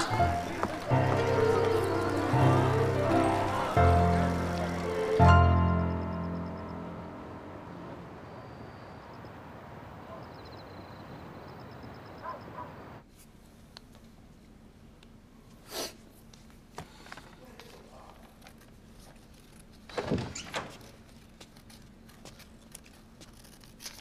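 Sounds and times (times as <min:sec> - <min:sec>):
distant traffic hiss: 0:00.0 - 0:13.0
insect chirps: 0:05.8 - 0:13.0.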